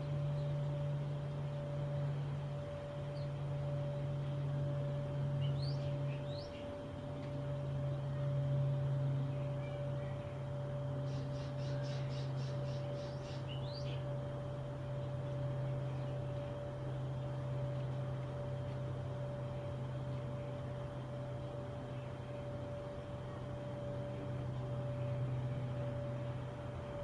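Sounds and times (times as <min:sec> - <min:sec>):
steady low hum: 0:00.0 - 0:27.0
bird trill: 0:05.4 - 0:06.7, 0:09.3 - 0:14.2
small birds chirping: 0:05.4 - 0:06.8, 0:09.2 - 0:14.2.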